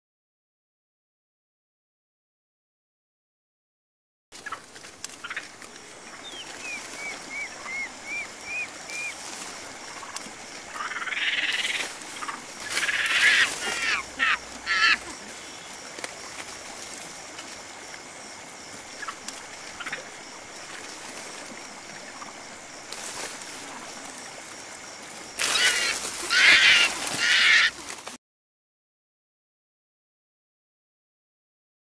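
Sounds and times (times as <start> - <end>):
rough animal calling: 5.2 - 9.3, 10.7 - 15.7, 25.4 - 27.9
animal chirps: 6.6 - 9.1.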